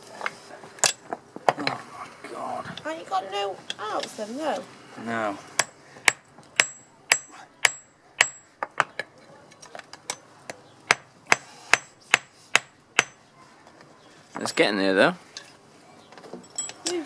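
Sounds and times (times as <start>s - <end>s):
hammer striking steel: 5.6s - 8.5s, 10.9s - 13.2s.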